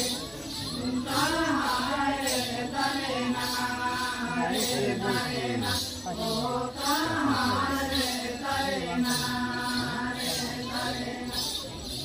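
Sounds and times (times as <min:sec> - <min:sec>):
group singing in unison: 0:00.0 - 0:11.9
jingling bells: 0:00.0 - 0:12.0.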